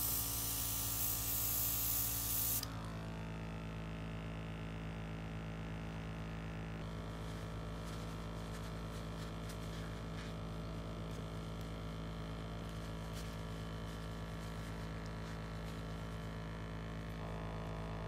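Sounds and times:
air compressor motor drone: 0.0 - 7.2
tissue rustling and ticking: 6.9 - 11.2.

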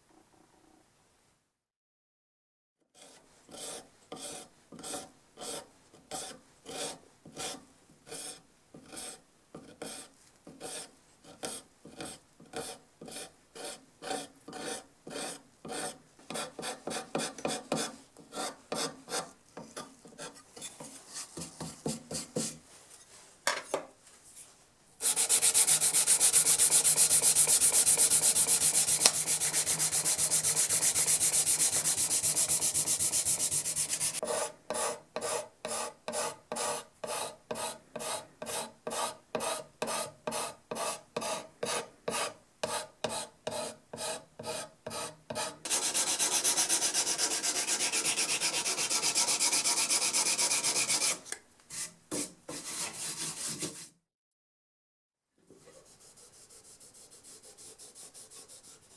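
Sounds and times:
hand rubbing on wood: 25.0 - 34.2
scraper strokes on wood: 25.0 - 54.0, 55.6 - 58.9.

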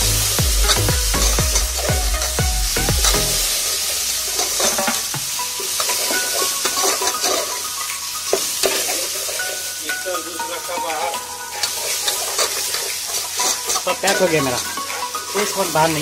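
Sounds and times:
falling tones with deep bass: 0.0 - 4.3
food sizzling in a pot: 0.0 - 16.0.

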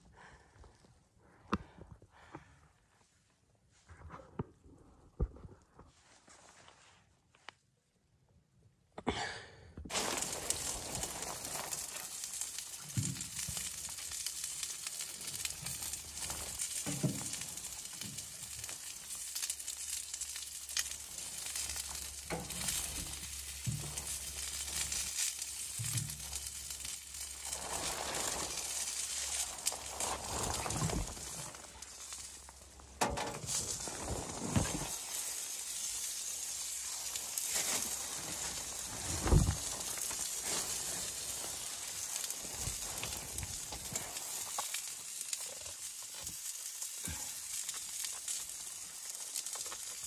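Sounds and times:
chicken sizzling on grill: 9.9 - 33.7, 34.6 - 50.0.

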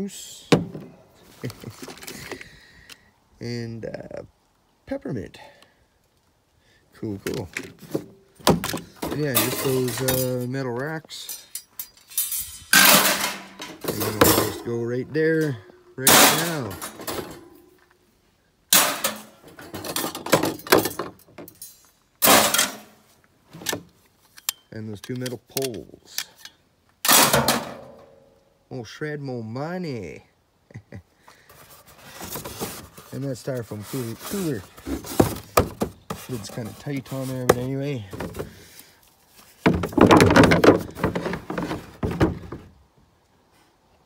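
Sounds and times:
objects scraping and rattling: 7.3 - 10.6, 11.2 - 14.8, 15.4 - 17.8, 18.7 - 24.4, 31.5 - 42.8
metal racks clattering: 7.4 - 10.5, 11.2 - 14.8, 15.4 - 17.7, 18.7 - 23.0, 27.1 - 28.1, 31.7 - 38.7, 39.6 - 42.7.

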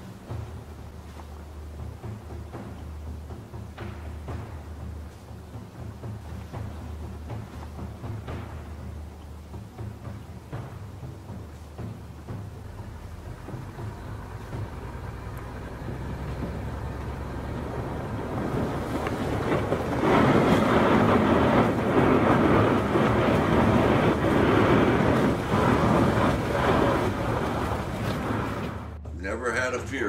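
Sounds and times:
boat engine running: 0.0 - 29.9
ice grinding against hull: 16.3 - 29.0.

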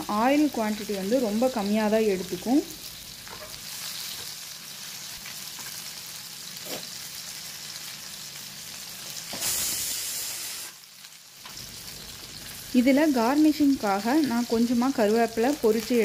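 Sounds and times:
fish frying in oil: 0.0 - 16.0.

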